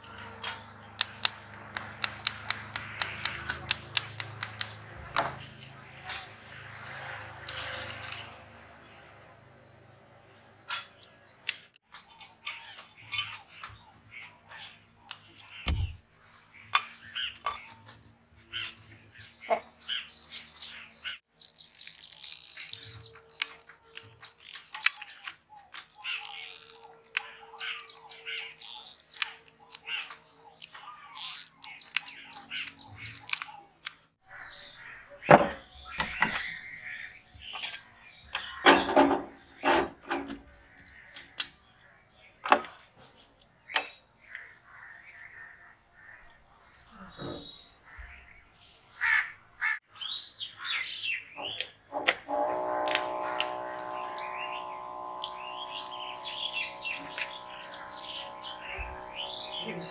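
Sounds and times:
small birds chirping: 10.6s - 39.8s, 53.2s - 59.9s
clicks and knocks of metal parts: 10.8s - 13.8s.

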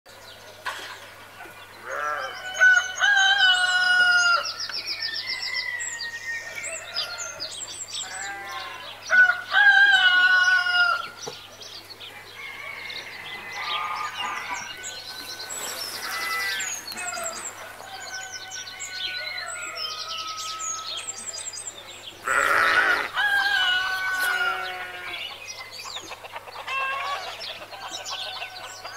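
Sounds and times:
rooster crowing: 2.0s - 4.5s, 8.2s - 11.1s, 16.0s - 21.2s, 22.3s - 25.2s
small birds chirping: 10.4s - 28.9s
hens clucking: 22.2s - 28.9s.

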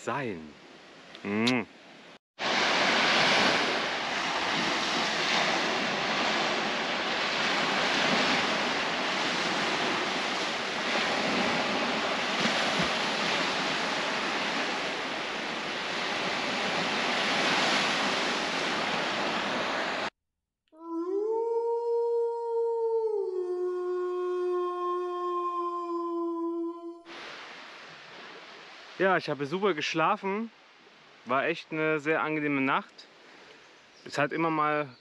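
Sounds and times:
waves breaking on sandy shore: 2.4s - 20.1s, 27.1s - 31.3s.

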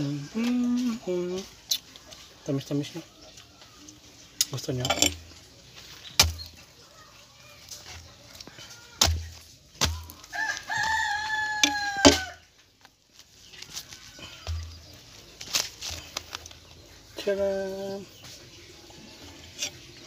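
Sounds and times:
rooster crowing: 10.2s - 12.4s.

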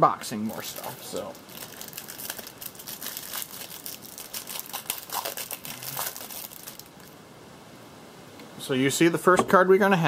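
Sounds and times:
packaging crinkling: 0.5s - 7.2s.

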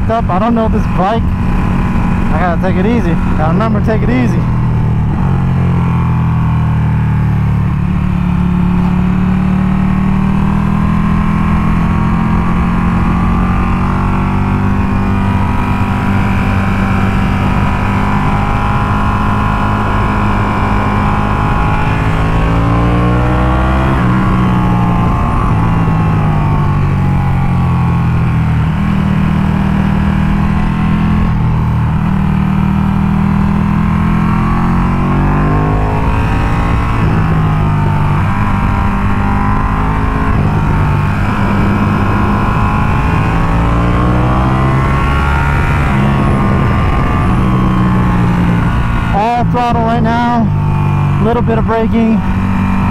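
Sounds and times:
motorcycle engine: 0.0s - 52.9s
wind rush: 34.9s - 51.2s.

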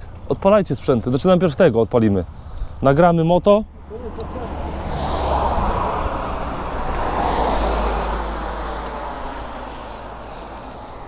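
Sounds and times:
vehicle passing: 3.8s - 11.0s.

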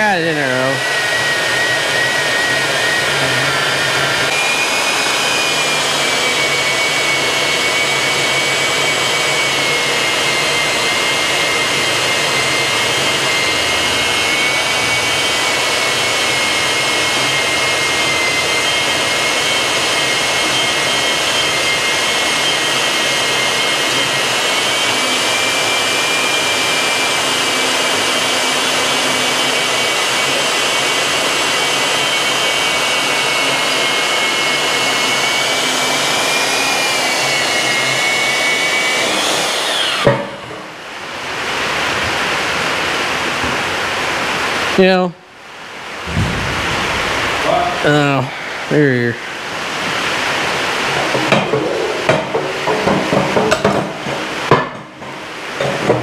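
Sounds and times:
band saw motor whine: 0.0s - 44.9s, 45.8s - 56.0s.

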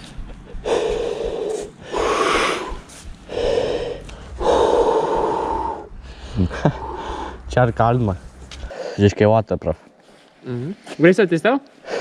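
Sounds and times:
person blowing out breaths: 0.6s - 7.5s.

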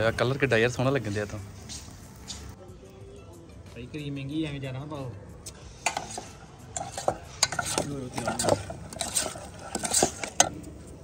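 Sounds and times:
metal utensils scraping and clinking: 5.7s - 11.0s.

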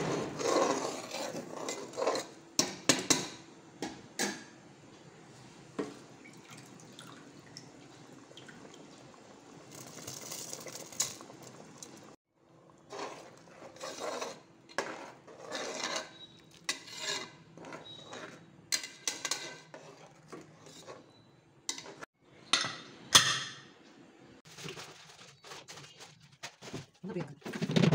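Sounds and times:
metal ladle scraping pot: 0.0s - 2.4s, 12.8s - 22.7s
water boiling and bubbling: 5.3s - 17.4s.

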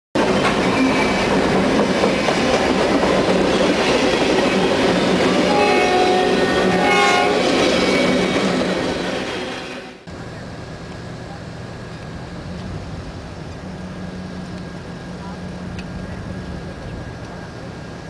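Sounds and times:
freight cars clattering over rails: 0.2s - 9.4s.

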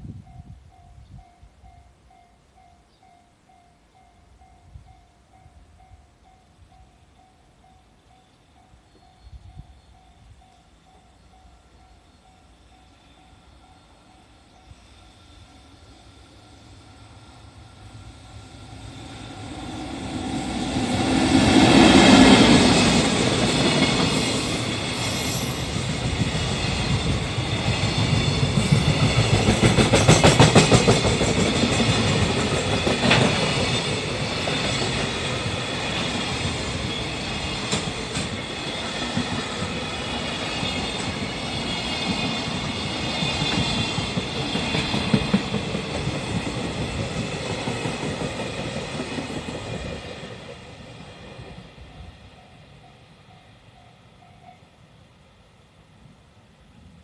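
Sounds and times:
electric locomotive passing: 0.0s - 57.0s.

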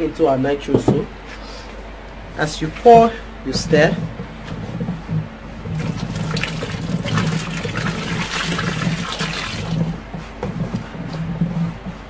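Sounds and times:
liquid pouring into bucket: 5.7s - 9.9s.

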